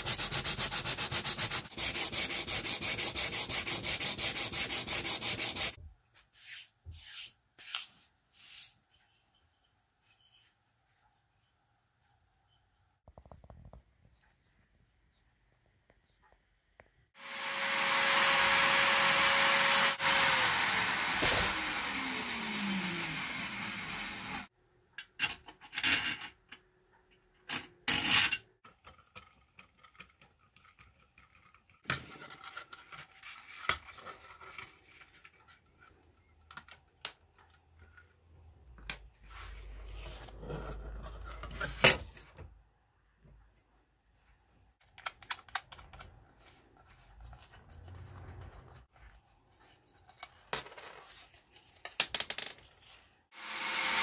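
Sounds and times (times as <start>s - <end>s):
motor whine winding down: 17.2s - 24.5s.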